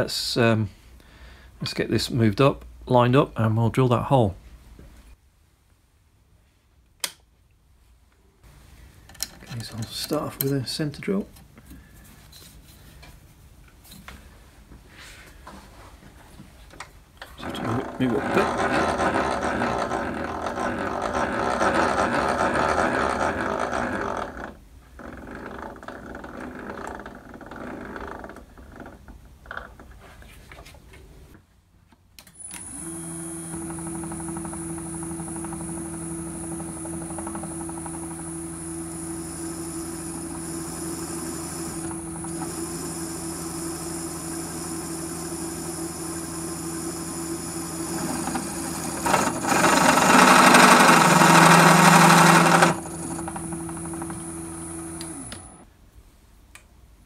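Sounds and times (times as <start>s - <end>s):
drill cutting into metal: 17.4s - 24.3s, 32.4s - 55.6s
motor humming with high whine: 32.4s - 55.7s.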